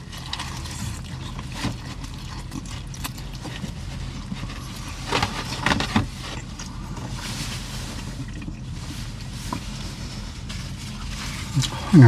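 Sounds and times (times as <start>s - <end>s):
low car cabin hum: 0.0s - 12.0s
paper bag rustling: 3.3s - 12.0s.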